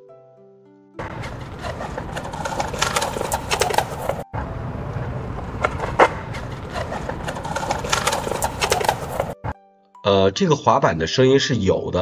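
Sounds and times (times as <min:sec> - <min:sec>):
skateboard clacks: 0:01.0 - 0:04.2, 0:04.8 - 0:09.4
skateboard wheels rolling: 0:01.0 - 0:09.4.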